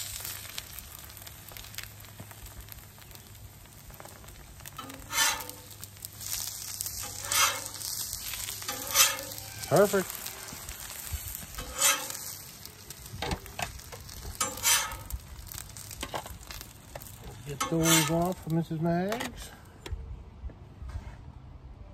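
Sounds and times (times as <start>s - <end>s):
eggs sizzling on a griddle: 0.0s - 19.6s
metal spatula scraping griddle: 4.7s - 12.5s, 13.2s - 15.2s, 15.8s - 19.5s.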